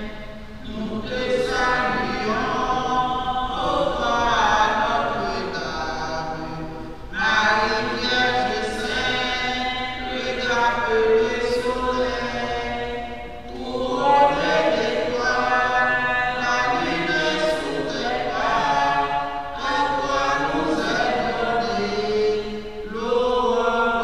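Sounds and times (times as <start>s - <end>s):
choir singing slow chant: 0.0s - 24.0s.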